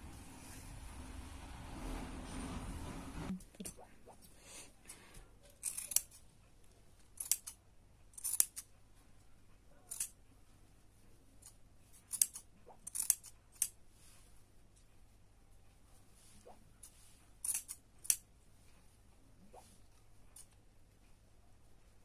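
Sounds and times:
scissors snipping yarn: 5.5s - 6.3s, 7.1s - 8.8s, 11.4s - 13.8s, 16.8s - 18.2s.

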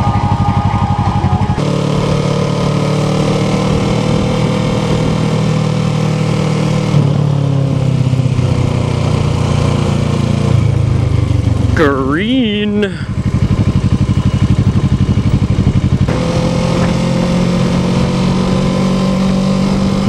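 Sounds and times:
motorcycle engine: 0.0s - 20.0s.

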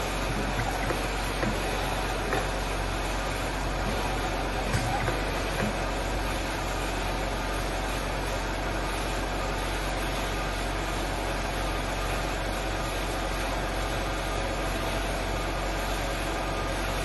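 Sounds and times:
dental milling machine whirring: 0.0s - 8.7s.

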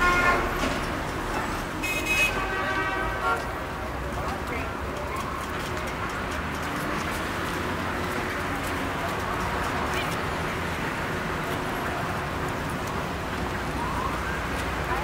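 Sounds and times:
steady traffic noise: 0.0s - 15.0s
indistinct crowd chatter: 3.4s - 15.0s.

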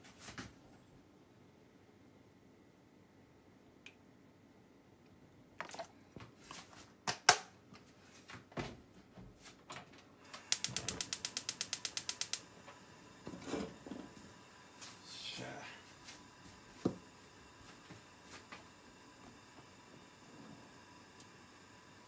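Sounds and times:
gas stove igniter clicking: 10.3s - 14.8s, 16.8s - 22.0s.

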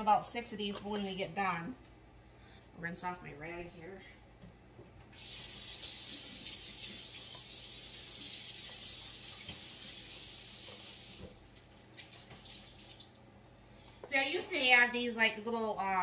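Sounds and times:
tap water running: 5.1s - 13.2s.

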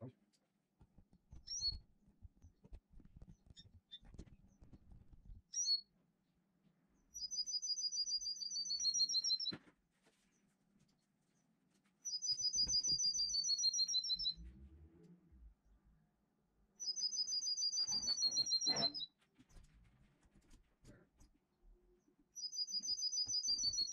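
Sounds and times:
songbird singing trills: 7.2s - 9.5s, 12.1s - 14.4s, 16.8s - 19.1s, 22.4s - 23.9s.

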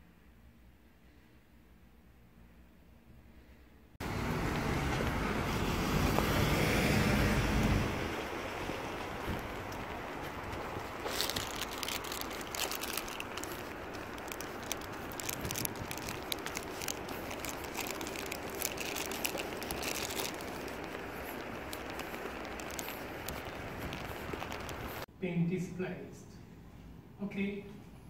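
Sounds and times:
plastic pack crinkling: 8.5s - 25.1s.

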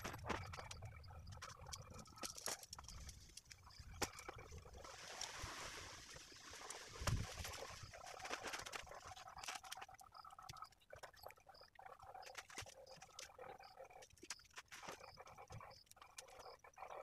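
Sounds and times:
tent fabric rustling: 4.8s - 8.9s.

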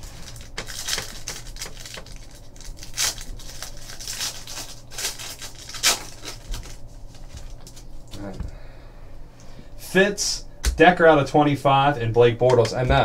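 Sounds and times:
foil wrapper tearing and crinkling: 0.0s - 7.8s.

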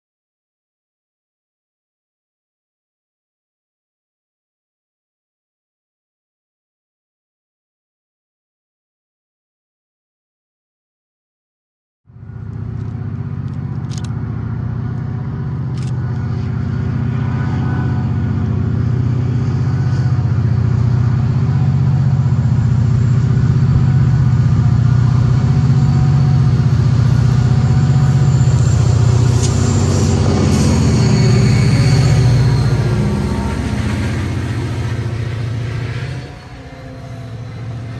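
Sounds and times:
diesel locomotive engine running: 12.1s - 37.9s.

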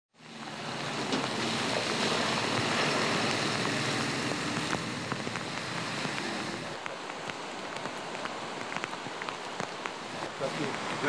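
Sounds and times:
rain and tyres hissing on water: 0.2s - 11.0s
heavy truck engine running: 0.3s - 6.8s.

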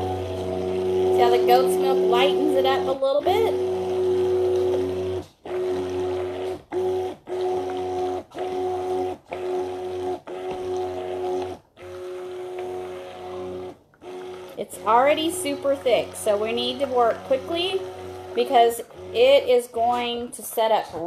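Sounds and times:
stick blender motor whining in pulses: 0.0s - 21.0s.

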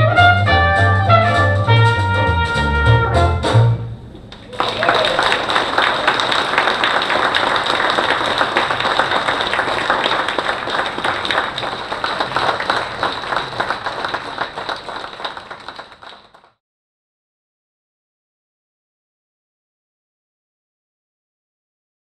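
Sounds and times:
audience applauding: 4.3s - 16.6s.

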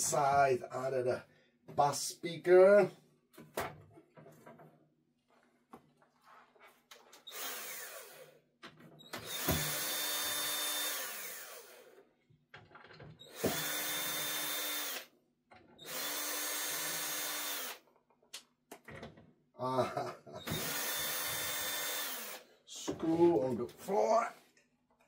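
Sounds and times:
cordless drill motor running: 7.3s - 8.4s, 9.1s - 12.0s, 13.2s - 15.1s, 15.8s - 17.8s, 20.4s - 22.5s.

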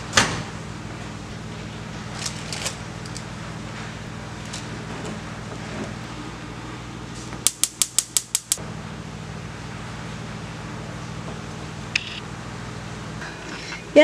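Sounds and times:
steady low hum: 0.0s - 14.0s
oven igniter clicking: 7.4s - 8.6s.

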